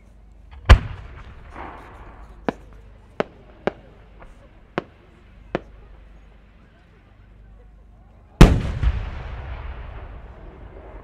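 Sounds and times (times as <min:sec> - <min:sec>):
firework mortar boom: 0:00.5 - 0:05.8, 0:08.4 - 0:11.0
sharp firework cracks: 0:00.5 - 0:05.9, 0:08.4 - 0:11.0.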